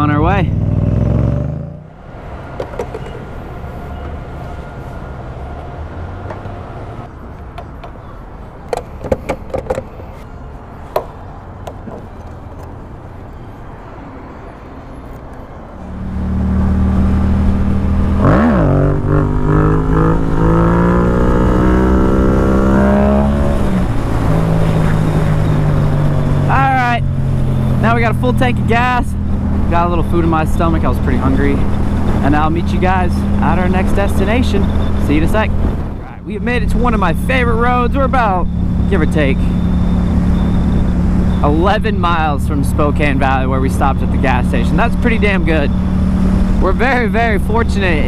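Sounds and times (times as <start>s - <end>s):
motorcycle engine revving: 0.0s - 2.0s, 15.9s - 41.5s, 43.7s - 48.0s.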